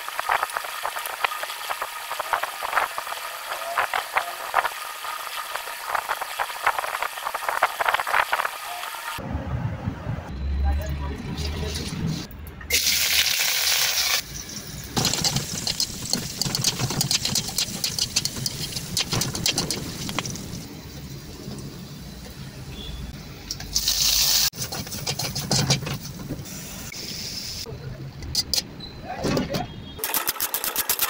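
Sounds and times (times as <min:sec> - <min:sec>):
onions sizzling in hot oil: 0:00.0 - 0:09.2, 0:12.7 - 0:22.3, 0:23.8 - 0:24.6.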